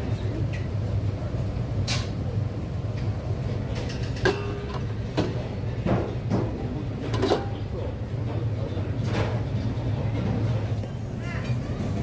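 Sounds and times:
kitchen low rumble: 0:00.0 - 0:12.0
utensils clinking: 0:03.8 - 0:05.4, 0:07.0 - 0:07.6.

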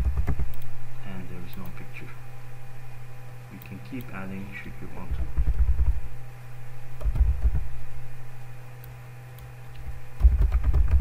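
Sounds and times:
steady electrical hum: 0:00.0 - 0:11.0
computer keyboard typing: 0:10.2 - 0:11.0.

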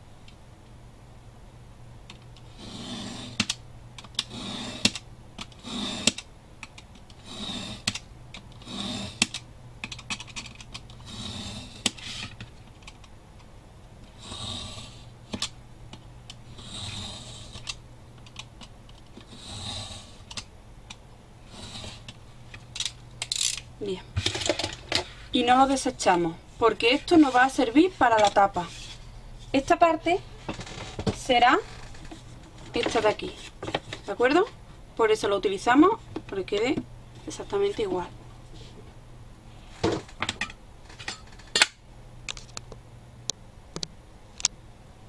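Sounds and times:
utility knife scraping along ruler: 0:02.5 - 0:03.4, 0:04.2 - 0:05.0, 0:05.6 - 0:06.2, 0:07.2 - 0:07.9, 0:16.5 - 0:17.6, 0:21.5 - 0:22.1.

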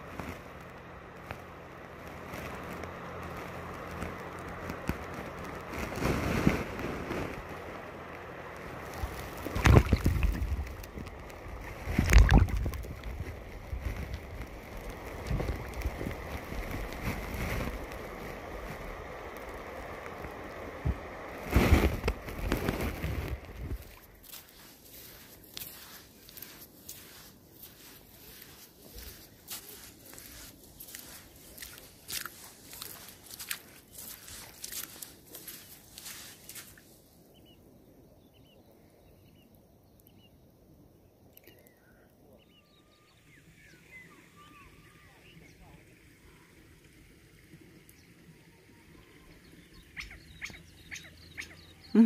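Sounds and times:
water sloshing and splashing: 0:00.0 - 0:37.0
faint bird chirps: 0:37.3 - 0:46.5, 0:47.9 - 0:52.0.

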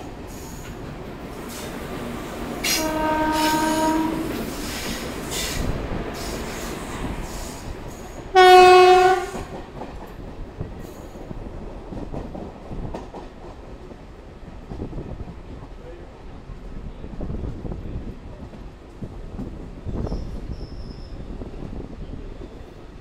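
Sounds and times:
train wheels on rails: 0:00.0 - 0:23.0
train horn blast: 0:02.6 - 0:04.6, 0:08.3 - 0:09.6.

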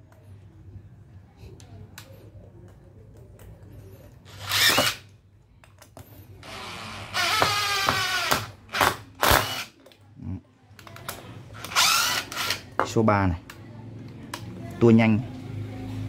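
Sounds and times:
impact driver whine: 0:04.3 - 0:05.0, 0:06.4 - 0:09.7
impact driver hammering: 0:04.4 - 0:05.0, 0:06.4 - 0:09.7.

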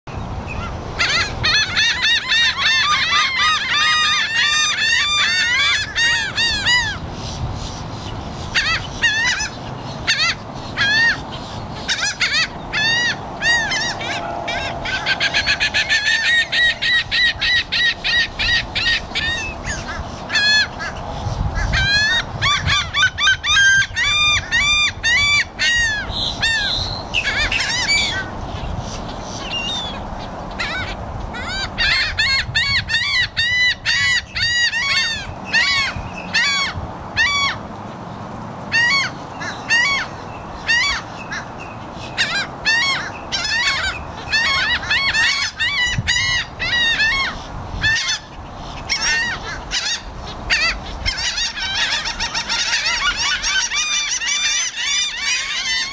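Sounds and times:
gulls calling: 0:00.1 - 0:55.9.

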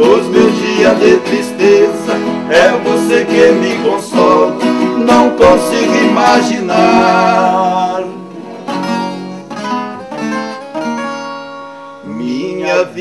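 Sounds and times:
two men singing duet: 0:00.0 - 0:08.3, 0:12.0 - 0:13.0
acoustic guitars: 0:00.0 - 0:13.0.

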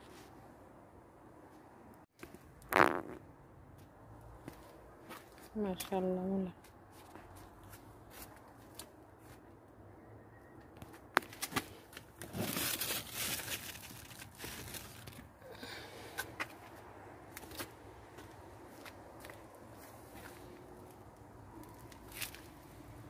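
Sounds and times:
rustling and handling noise: 0:10.8 - 0:15.4.

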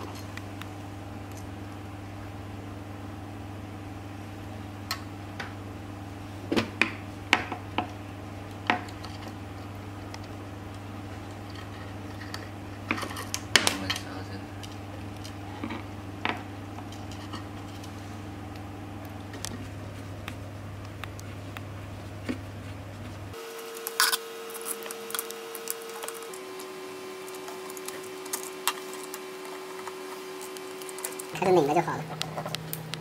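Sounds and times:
screws and metal clinking: 0:23.4 - 0:31.4.

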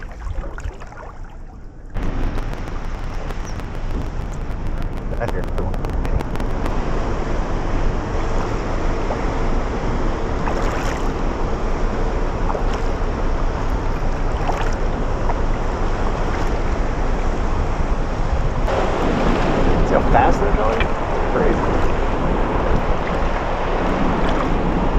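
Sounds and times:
paddle splashes: 0:00.0 - 0:03.3, 0:10.4 - 0:11.3, 0:12.3 - 0:17.0, 0:18.6 - 0:24.9
ship engine low rumble: 0:00.0 - 0:24.9
wind on microphone: 0:00.0 - 0:24.9.

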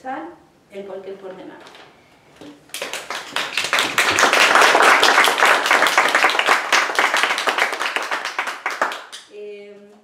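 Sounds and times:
audience applauding: 0:02.7 - 0:09.2.

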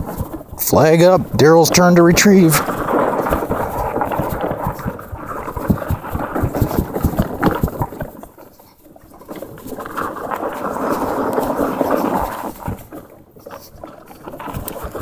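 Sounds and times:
wind buffeting microphone: 0:00.0 - 0:08.3
footsteps crunching on snowy ice: 0:00.0 - 0:15.0.

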